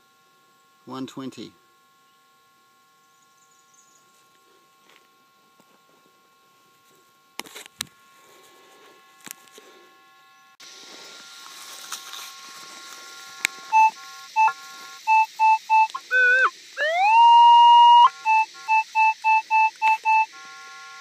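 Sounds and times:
faint steady tones: 8.0s - 21.0s
metal detector beeps: 13.0s - 21.0s.

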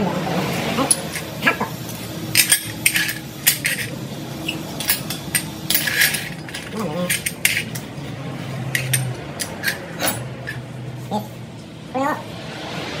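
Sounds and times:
steady low hum: 0.0s - 13.0s
light metallic clinks and clatter: 2.3s - 3.9s, 4.8s - 7.9s, 8.6s - 10.6s.

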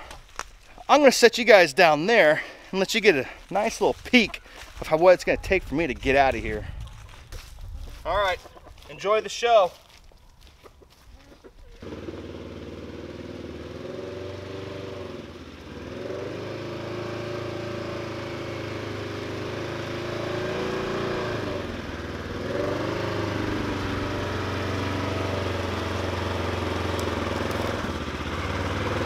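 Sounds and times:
utility vehicle engine under throttle: 11.8s - 29.0s.

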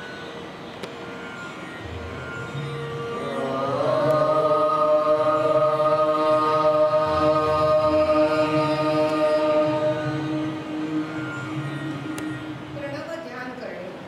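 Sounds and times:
low drone: 0.0s - 13.6s
voice chanting long note: 1.8s - 13.1s.

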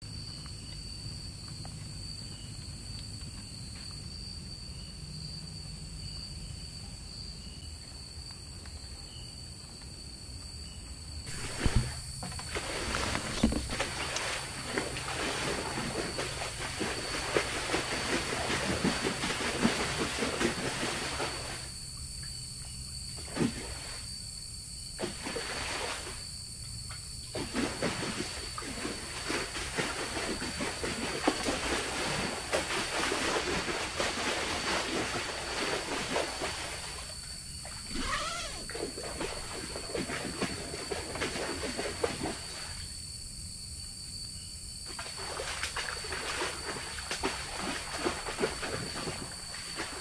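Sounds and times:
high-pitched insect drone: 37.6s - 39.6s.

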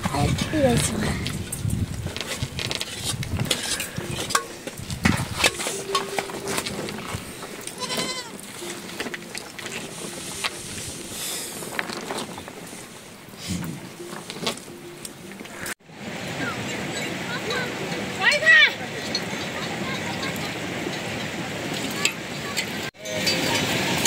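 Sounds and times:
goats and sheep bleating: 7.5s - 9.4s.

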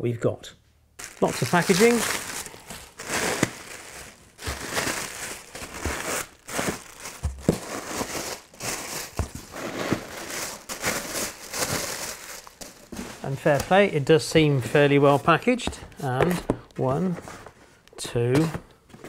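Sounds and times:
plastic air cushions crinkling: 1.0s - 15.7s.

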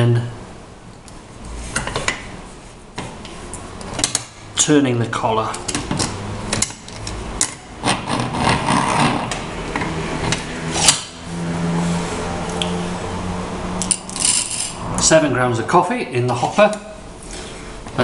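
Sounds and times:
metal rubbing and scraping: 5.6s - 15.1s.

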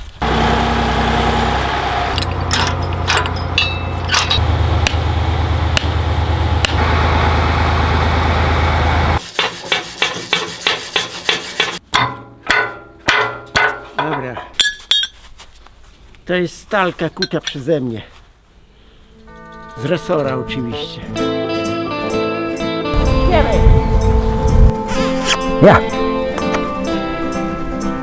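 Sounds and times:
loud machine hum: 0.2s - 9.2s.

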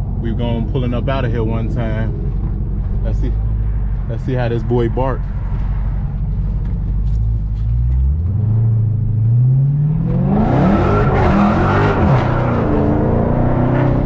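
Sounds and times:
car engine accelerating hard: 6.0s - 14.0s.

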